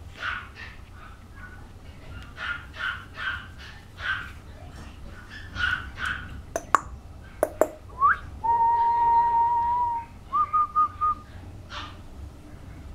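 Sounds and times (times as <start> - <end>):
mouth clicks: 6.0 - 7.8.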